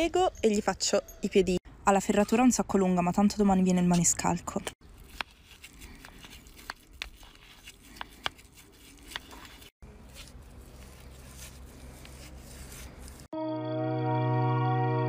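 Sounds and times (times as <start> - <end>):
stiff brush scratching on hoof: 4.9 - 13.3.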